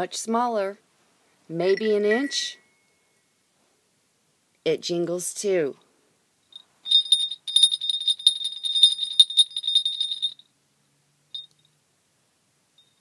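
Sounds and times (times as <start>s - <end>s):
sleigh bell jingling: 6.5s - 10.4s.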